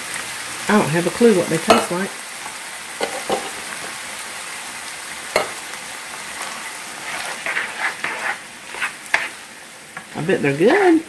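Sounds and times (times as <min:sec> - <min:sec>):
meat sauce sizzling in a skillet: 0:00.0 - 0:11.0
spoon scraping through sauce: 0:06.4 - 0:09.4.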